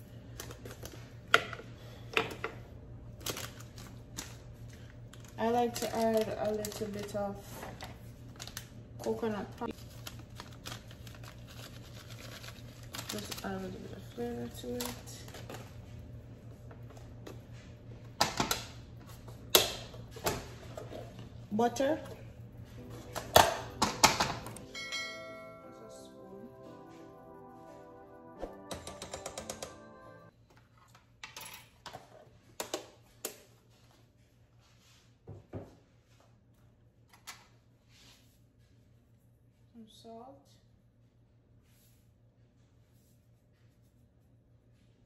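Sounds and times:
kitchen items clicking and knocking: 23.1 - 24.7.

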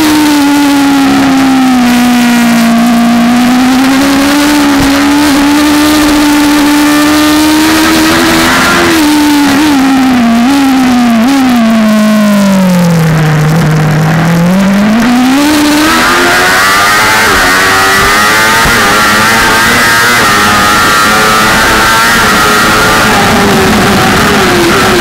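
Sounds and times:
motorcycle engine revving: 0.0 - 25.0
wind rush: 13.0 - 25.0.

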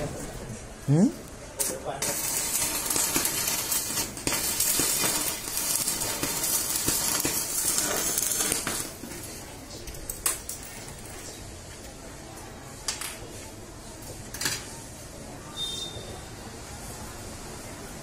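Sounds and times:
welding arc crackling: 1.3 - 10.7.

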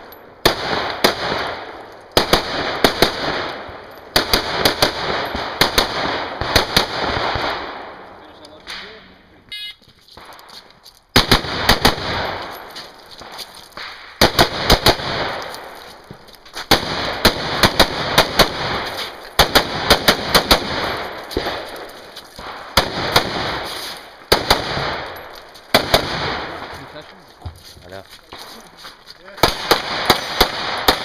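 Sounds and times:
rapid rifle fire: 0.4 - 7.9, 11.2 - 12.5, 13.2 - 15.5, 16.7 - 21.8, 22.4 - 26.7, 29.4 - 31.0.

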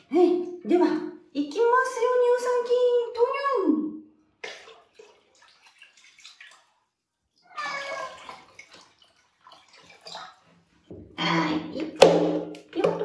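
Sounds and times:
water splashing into plastic tub: 4.4 - 11.2, 11.8 - 13.0.

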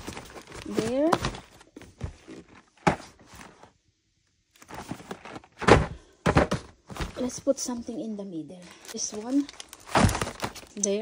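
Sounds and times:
boxes thudding down: 0.0 - 3.5, 4.7 - 7.4, 9.8 - 10.6
boxes shuffling: 0.0 - 3.8, 4.6 - 7.8, 8.7 - 11.0
boxes knocking in cardboard box: 5.5 - 7.3.

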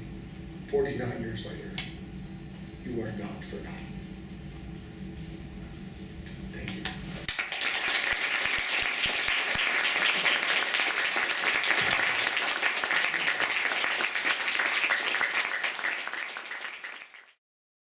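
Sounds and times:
audience applauding: 7.3 - 17.4.

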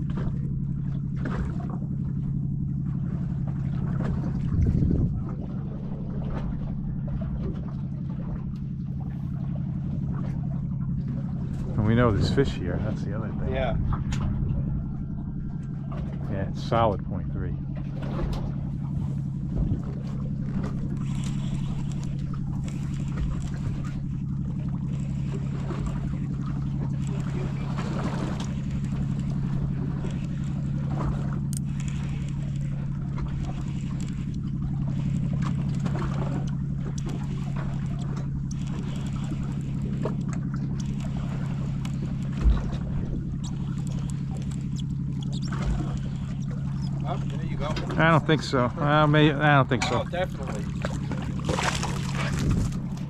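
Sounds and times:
boat engine idling: 0.0 - 53.0
water washing: 0.0 - 53.0.

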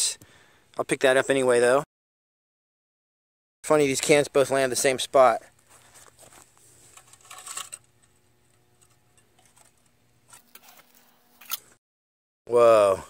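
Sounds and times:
aluminium can crinkling: 5.9 - 11.7.

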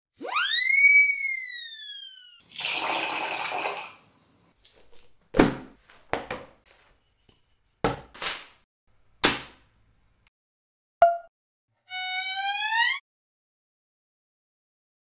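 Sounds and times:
falling whistle tone: 0.2 - 2.4
water poured into metal bowl: 2.4 - 4.0
slaps on open book: 7.8 - 8.6, 9.2 - 9.6.

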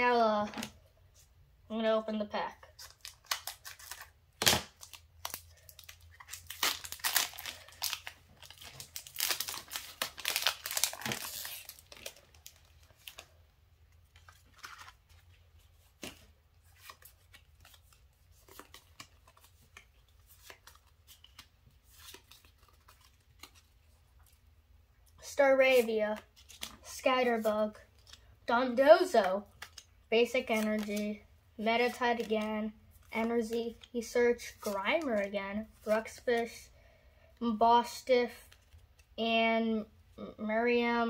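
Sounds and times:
foil wrapper crinkling and tearing: 2.8 - 13.4.

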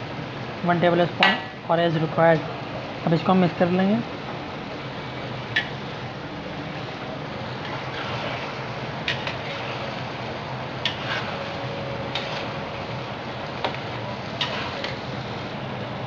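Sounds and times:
oil sizzling: 4.4 - 16.0
metal spatula scraping a pan: 7.6 - 10.0, 10.8 - 12.7, 14.4 - 15.1.

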